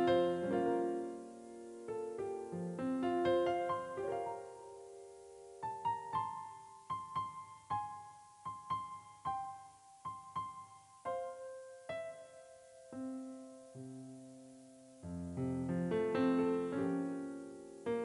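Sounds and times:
gentle piano melody: 0:00.0 - 0:18.0.

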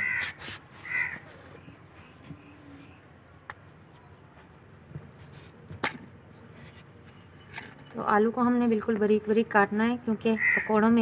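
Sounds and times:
knife scraping a potato: 0:00.0 - 0:01.4.

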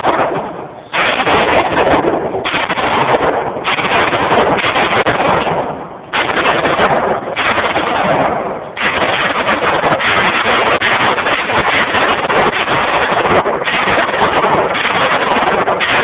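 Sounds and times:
loud gunshots: 0:00.0 - 0:16.0.

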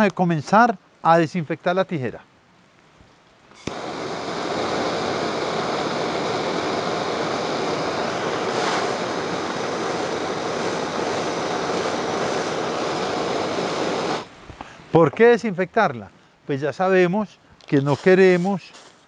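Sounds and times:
gas torch hissing: 0:03.5 - 0:14.8.

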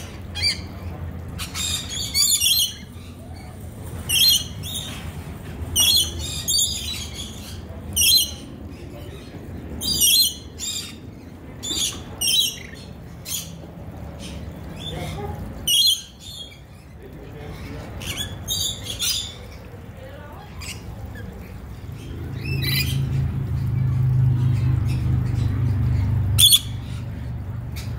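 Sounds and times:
parrots screeching: 0:01.4 - 0:03.5, 0:14.2 - 0:16.6, 0:26.4 - 0:26.8.

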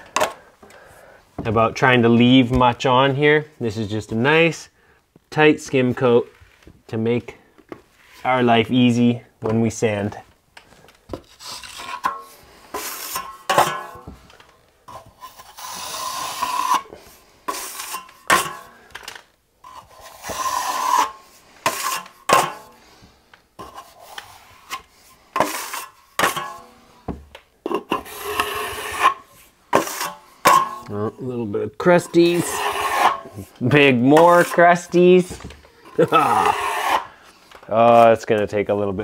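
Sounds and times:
trowel scraping wall: 0:11.2 - 0:14.1, 0:14.9 - 0:18.9, 0:19.6 - 0:22.9, 0:23.6 - 0:26.7, 0:27.7 - 0:31.0, 0:31.8 - 0:37.2.

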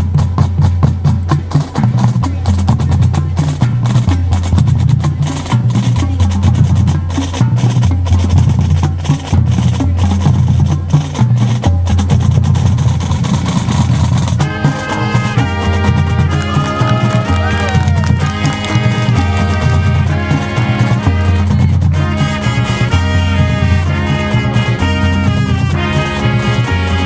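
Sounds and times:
deep bass drum notes: 0:00.0 - 0:27.0
snare drum strokes and rolls: 0:00.0 - 0:27.0
wind instruments: 0:12.2 - 0:27.0.

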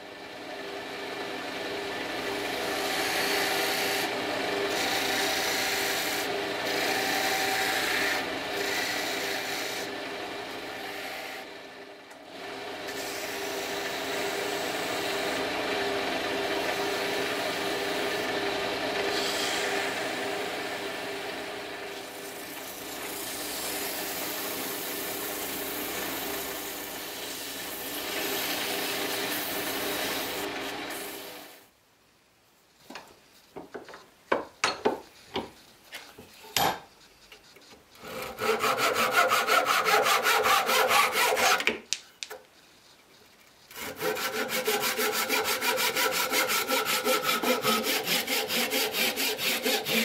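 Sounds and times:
wood lathe motor hum: 0:00.2 - 0:31.6, 0:38.0 - 0:41.7, 0:43.7 - 0:50.0
chisel scraping spinning wood: 0:21.9 - 0:31.5, 0:37.0 - 0:41.9, 0:43.6 - 0:50.0.

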